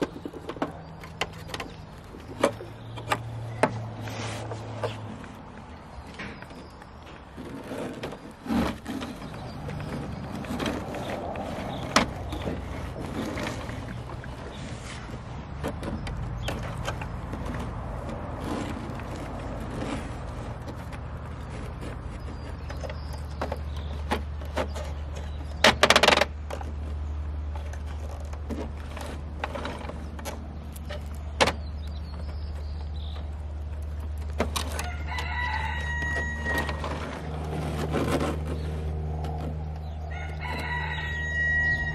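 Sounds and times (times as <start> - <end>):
toy truck clicks and scraping: 0.0 - 41.9
loud rustle: 3.8 - 23.2
rooster crowing: 34.8 - 37.0, 40.0 - 41.9.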